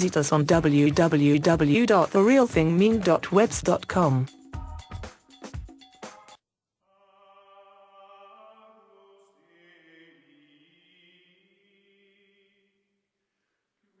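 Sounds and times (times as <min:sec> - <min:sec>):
choir-like chanted chords: 0:06.9 - 0:12.3.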